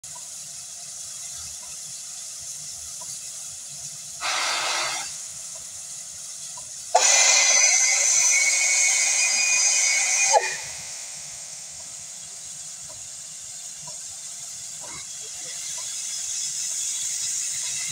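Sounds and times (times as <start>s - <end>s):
loud blasts of hissing steam: 0.0s - 17.9s
steam locomotive hissing: 0.0s - 17.9s.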